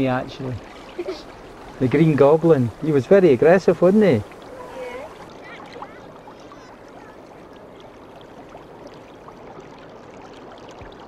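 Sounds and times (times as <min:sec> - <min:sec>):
river water flowing: 0:00.0 - 0:11.0.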